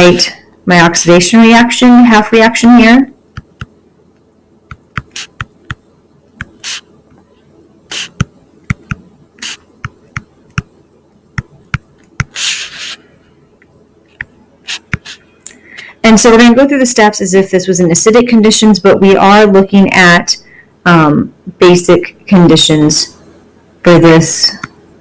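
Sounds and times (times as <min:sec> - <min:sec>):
stylus tapping on tablet: 0:03.3 - 0:03.7, 0:04.7 - 0:05.8, 0:06.4 - 0:06.8, 0:07.9 - 0:10.7, 0:11.4 - 0:12.4
stylus scratchy strokes: 0:04.7 - 0:05.8, 0:06.4 - 0:06.9, 0:07.9 - 0:10.7, 0:12.1 - 0:13.1, 0:14.1 - 0:15.3.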